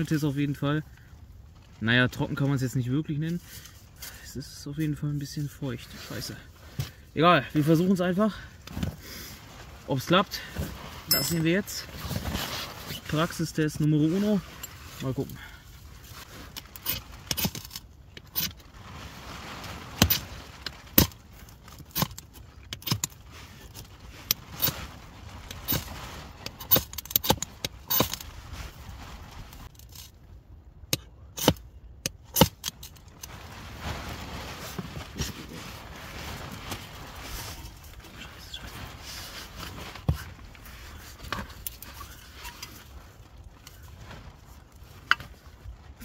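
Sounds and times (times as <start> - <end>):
knife scraping fire steel: 16.2 - 18.6, 19.8 - 20.3, 20.9 - 28.3, 32.3 - 33.0
quiet rustling: 32.7 - 46.0.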